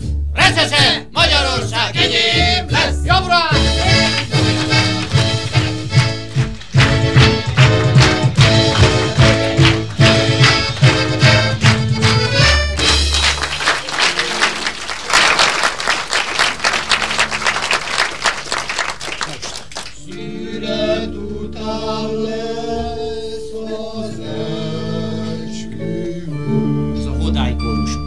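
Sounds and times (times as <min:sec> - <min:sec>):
audience applause: 0:03.7 - 0:20.0
slow music of held chords: 0:20.0 - 0:28.0.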